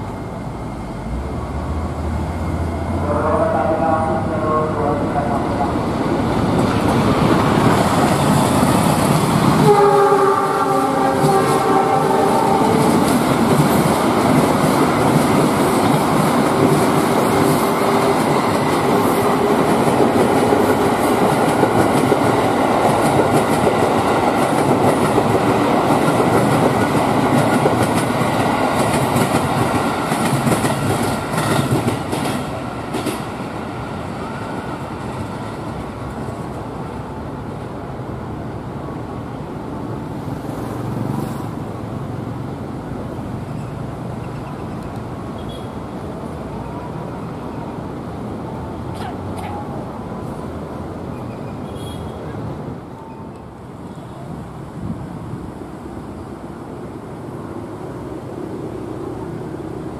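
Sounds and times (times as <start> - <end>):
train horn: 3.0 - 5.7, 9.6 - 13.0.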